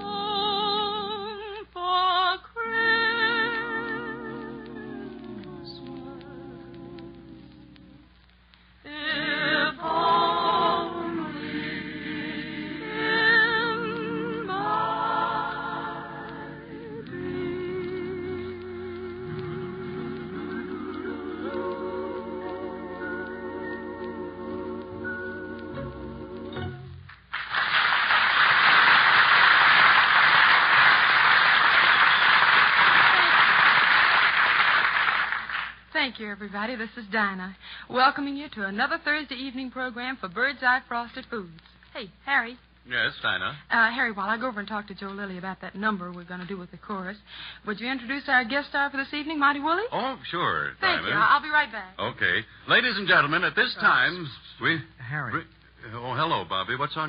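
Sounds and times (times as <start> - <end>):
choir singing held chords: 0.0 - 8.1, 8.8 - 27.0
audience applauding: 27.2 - 35.8.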